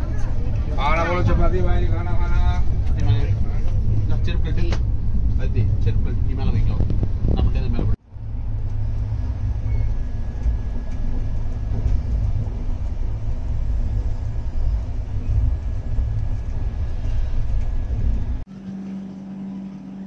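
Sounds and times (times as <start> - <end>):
faint steady whine: 0.0 - 20.0
train rumbling: 0.0 - 20.0.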